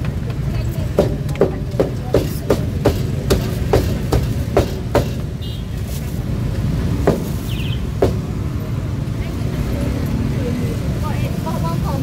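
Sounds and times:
cleaver chopping meat on wood: 0:01.0 - 0:05.3, 0:07.1 - 0:07.3, 0:08.0 - 0:08.3.

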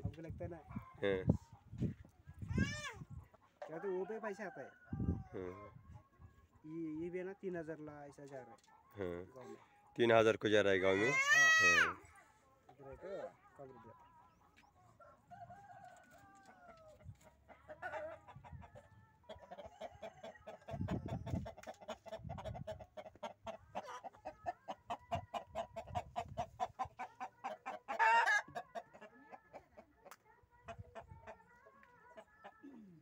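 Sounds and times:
chickens clucking rapidly: 0:17.0 - 0:31.5.

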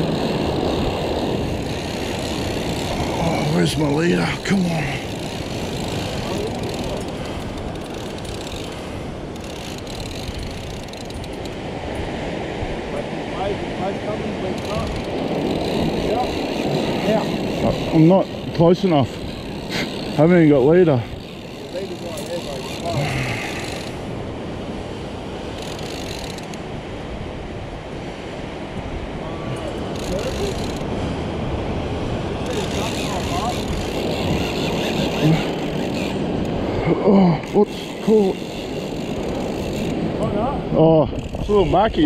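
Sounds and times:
fishing reel clicking: 0:00.0 - 0:11.6, 0:14.6 - 0:24.0, 0:25.6 - 0:26.6, 0:29.9 - 0:30.9, 0:32.4 - 0:36.6, 0:37.5 - 0:40.0
surf: 0:00.0 - 0:42.0
wind: 0:00.0 - 0:42.0.

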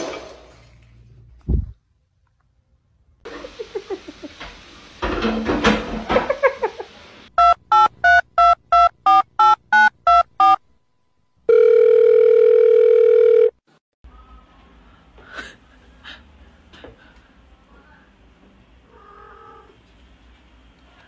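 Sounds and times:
telephone keypad beeps: 0:07.4 - 0:10.6
steady phone tone: 0:11.5 - 0:13.6.

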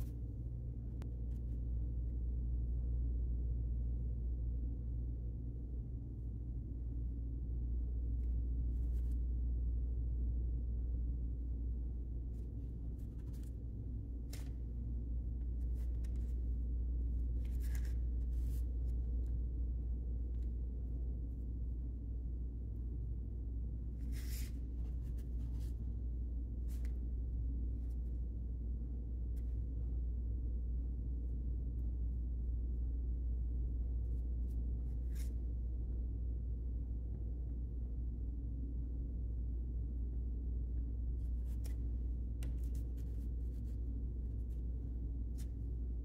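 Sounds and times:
low room hum: 0:00.0 - 0:46.0
paintbrush scratching on paper: 0:24.0 - 0:25.8, 0:42.4 - 0:45.7.

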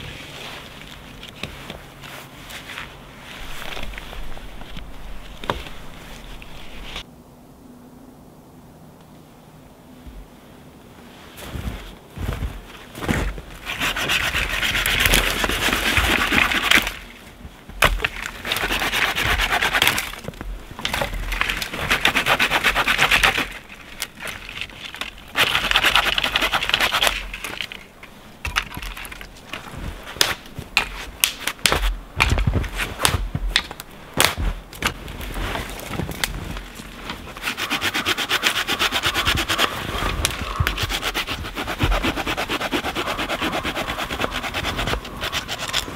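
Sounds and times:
hand saw rasping through branches: 0:13.6 - 0:17.1, 0:17.9 - 0:27.8, 0:37.0 - 0:45.9
sticks snapping: 0:28.5 - 0:32.4, 0:33.0 - 0:35.0.

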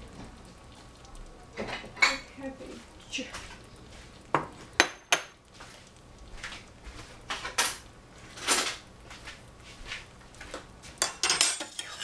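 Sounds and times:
kitchenware clinking: 0:01.6 - 0:02.3, 0:04.4 - 0:05.4, 0:11.0 - 0:12.0
ceramic bowl clattering on stovetop: 0:04.3 - 0:05.4, 0:11.0 - 0:12.0.

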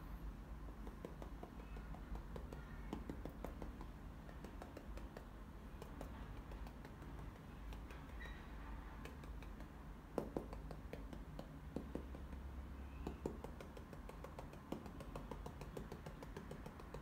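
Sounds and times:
low steady hum: 0:00.0 - 0:17.0
paintbrush tapping on canvas: 0:00.8 - 0:08.3, 0:09.0 - 0:17.0.

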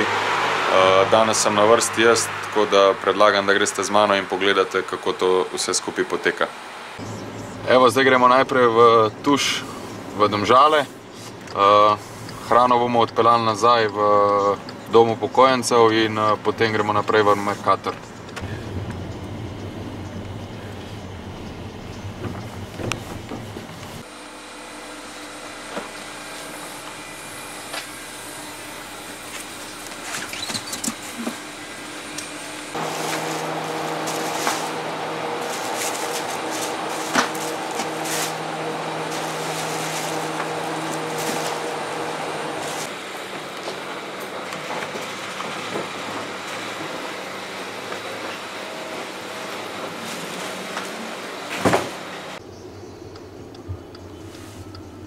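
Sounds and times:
steady mechanical hum: 0:00.0 - 0:55.0
crates thumping into car boot: 0:51.5 - 0:52.0.

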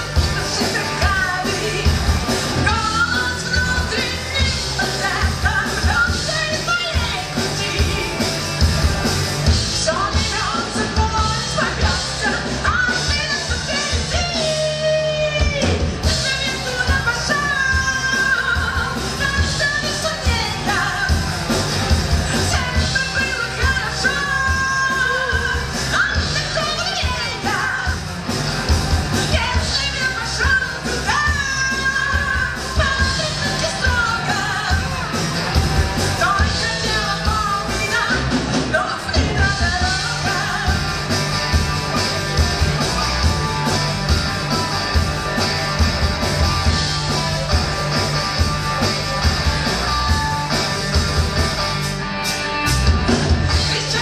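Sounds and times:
woman singing: 0:00.0 - 0:08.3, 0:09.8 - 0:21.3, 0:22.3 - 0:28.0, 0:29.1 - 0:35.0, 0:36.1 - 0:41.2, 0:53.5 - 0:54.0
bass guitar: 0:00.0 - 0:54.0
drums: 0:00.0 - 0:54.0
electric guitars: 0:00.0 - 0:54.0.

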